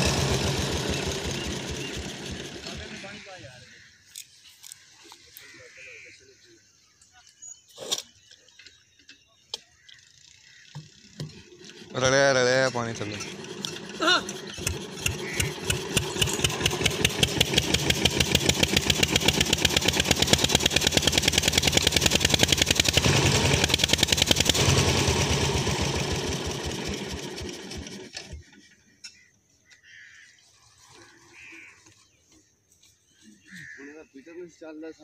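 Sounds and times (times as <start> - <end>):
diesel engine chugging: 0.0 - 3.8, 10.6 - 28.5.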